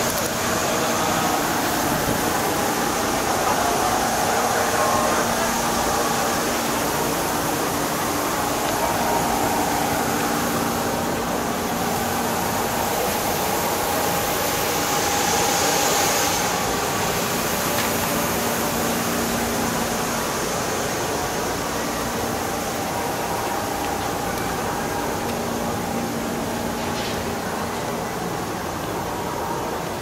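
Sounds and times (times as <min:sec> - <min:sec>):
faint steady tones: 0:00.0 - 0:30.0
train air conditioning hum: 0:00.0 - 0:30.0.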